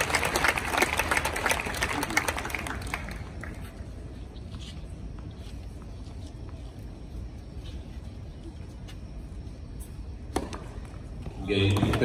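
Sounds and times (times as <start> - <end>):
crowd applauding: 0.0 - 3.7.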